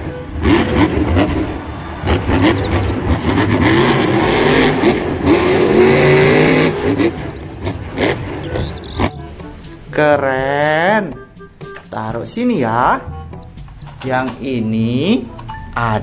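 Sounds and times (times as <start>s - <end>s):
engine revving: 0.0s - 10.0s, 12.6s - 14.4s.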